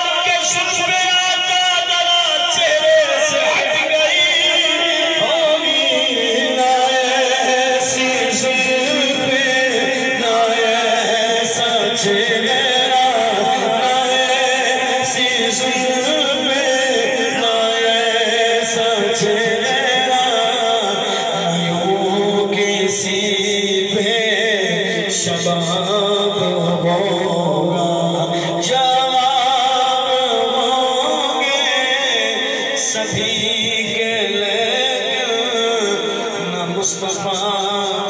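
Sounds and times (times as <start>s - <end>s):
man singing into microphone: 0.0s - 38.0s.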